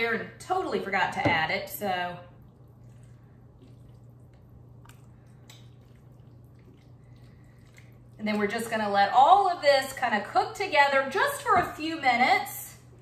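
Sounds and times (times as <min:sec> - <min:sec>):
low steady hum: 0:00.0 - 0:13.0
spoon stirring wet filling: 0:02.4 - 0:09.4.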